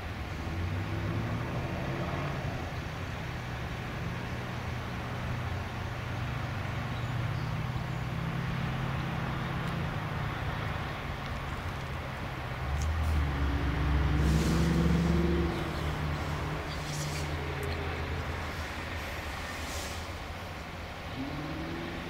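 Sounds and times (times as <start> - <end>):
road traffic: 0.0 - 22.0
vehicle engine running: 0.0 - 22.0
vehicle passing close: 0.0 - 22.0.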